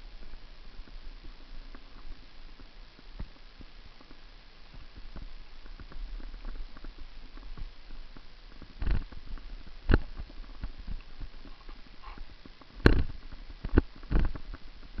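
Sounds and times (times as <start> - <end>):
steady low rumble: 0.0 - 15.0
bicycle rattling over gravel: 4.0 - 15.0.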